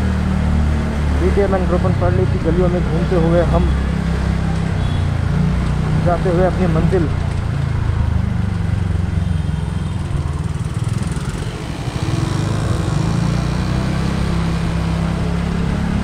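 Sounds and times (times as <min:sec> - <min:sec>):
motorcycle engine running: 0:05.9 - 0:16.0.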